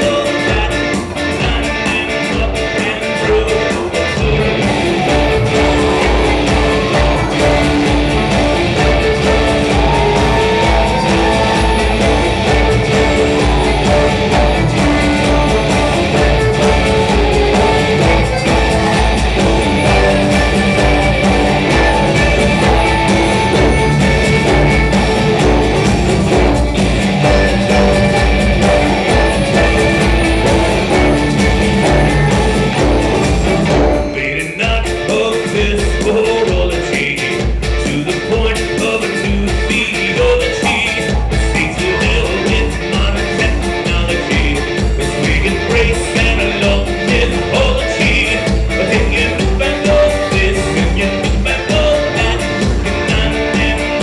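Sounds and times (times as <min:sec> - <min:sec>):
drum beat: 0:00.0 - 0:54.0
electric guitar: 0:00.0 - 0:54.0
violin: 0:04.2 - 0:34.2.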